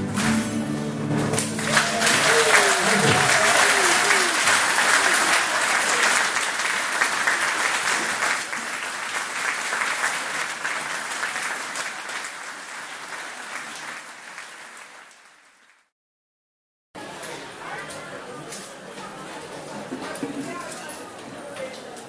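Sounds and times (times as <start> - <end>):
audience applauding: 1.2 - 15.8.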